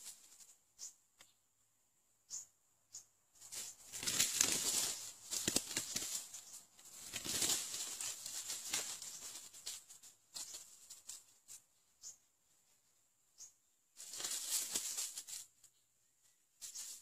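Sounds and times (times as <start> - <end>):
dry leaves rustling and crackling: 3.4 - 11.6, 14.0 - 15.6, 16.6 - 17.0.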